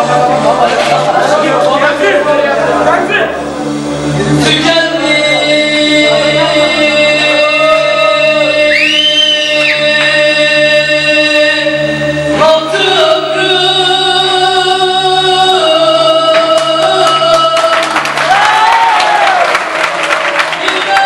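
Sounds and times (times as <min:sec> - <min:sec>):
man singing into microphone: 0:04.2 - 0:18.0, 0:20.4 - 0:21.0
rhythmic hand clapping: 0:09.5 - 0:10.2, 0:16.2 - 0:21.0.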